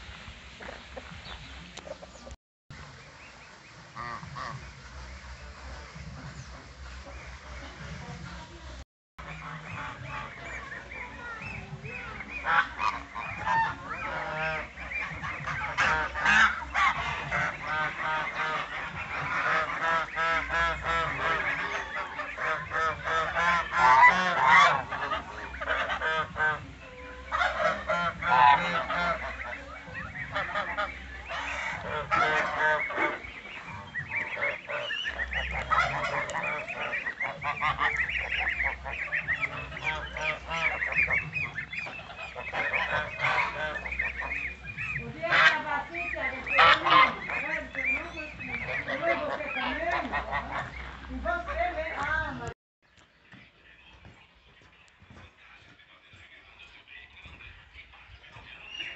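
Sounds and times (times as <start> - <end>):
geese honking: 0.0 - 52.6.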